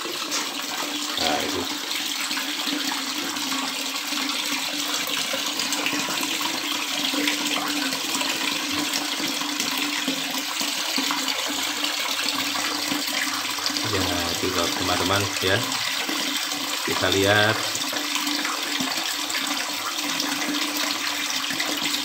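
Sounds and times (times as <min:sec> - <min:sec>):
electric water pump humming: 0:00.0 - 0:22.0
water jet pouring into bath tub: 0:00.0 - 0:22.0.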